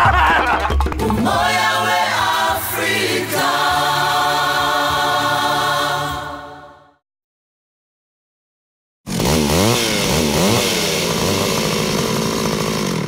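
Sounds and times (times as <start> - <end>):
voices singing in chorus: 1.0 - 7.0.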